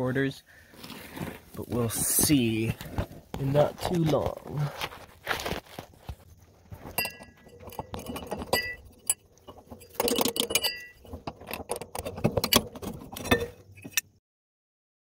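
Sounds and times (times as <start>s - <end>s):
metal pulley clinking and scraping: 6.7s - 14.2s
short metallic rings: 6.9s - 11.2s.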